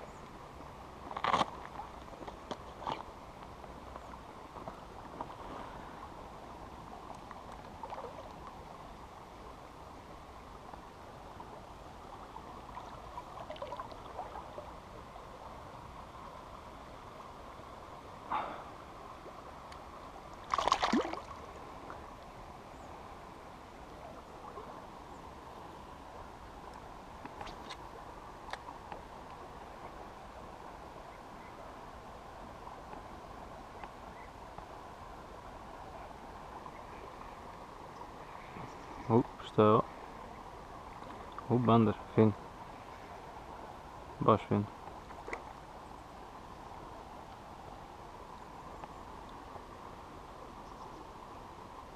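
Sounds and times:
river water lapping: 0.0s - 51.9s
light splashing: 20.4s - 21.6s.

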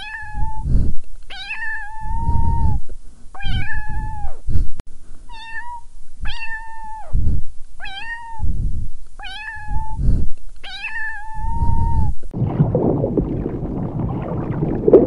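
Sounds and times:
kitten meowing: 0.0s - 0.6s, 1.3s - 2.8s, 3.4s - 4.4s, 5.3s - 7.2s, 7.8s - 8.5s, 9.2s - 10.0s, 10.6s - 12.2s
low thuds: 11.6s - 15.0s.

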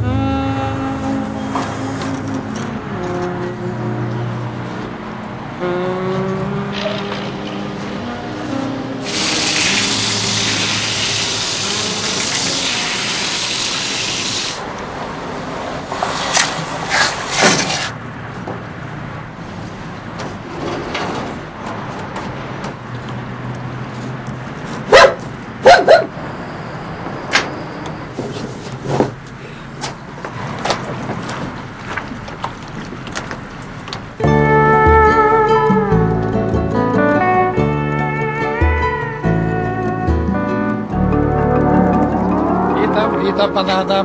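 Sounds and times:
rushing water hiss: 9.0s - 14.6s
dog barking: 24.9s - 26.2s.

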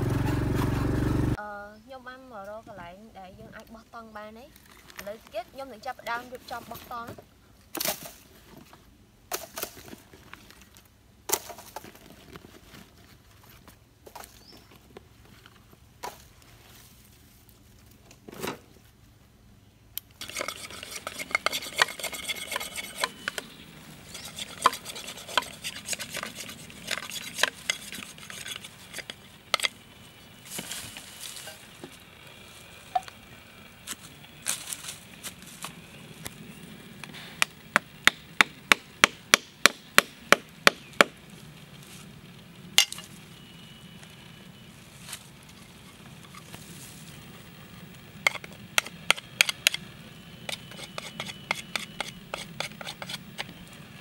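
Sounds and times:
knife cutting bamboo: 20.2s - 29.8s, 50.5s - 53.5s.

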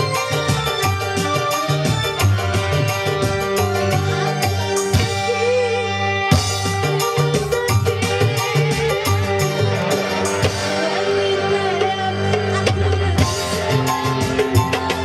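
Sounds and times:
steady drum beat: 0.0s - 5.7s, 6.3s - 15.0s.

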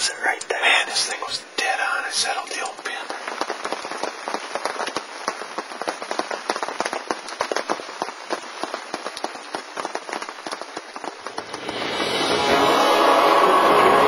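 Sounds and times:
music: 11.5s - 14.0s.

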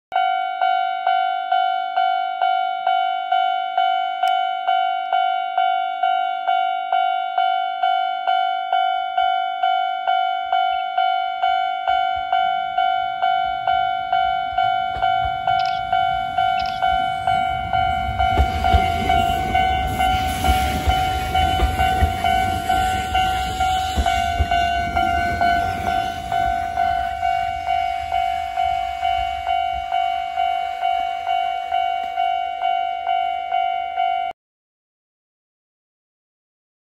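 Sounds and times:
railroad crossing bell ringing: 0.1s - 34.4s
electric train rumbling past: 11.0s - 34.3s.

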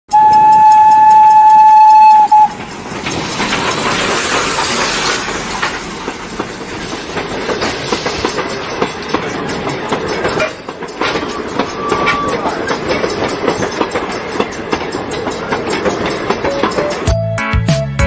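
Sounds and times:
steam locomotive whistle: 0.1s - 2.6s, 11.3s - 12.5s
train clanks and clicks: 0.1s - 18.0s
train hiss and rumble: 0.2s - 17.0s.

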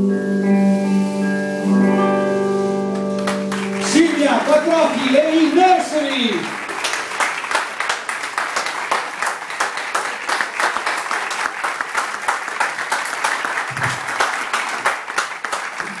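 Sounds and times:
audience applauding: 3.0s - 16.0s.

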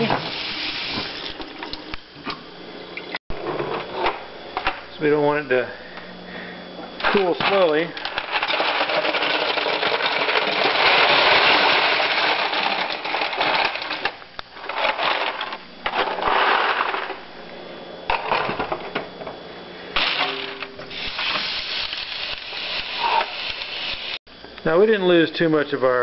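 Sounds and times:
ice cubes clattering into a steel sink: 7.4s - 14.2s, 20.0s - 22.6s.

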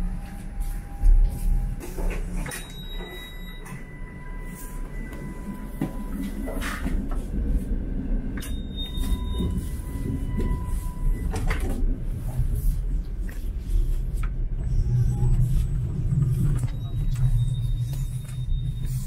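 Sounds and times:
steady low rumble: 3.8s - 19.0s.

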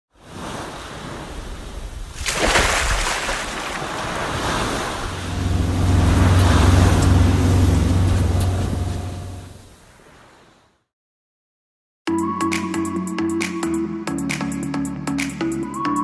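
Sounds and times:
waves washing: 0.2s - 10.7s
motorboat engine humming: 3.8s - 9.7s.

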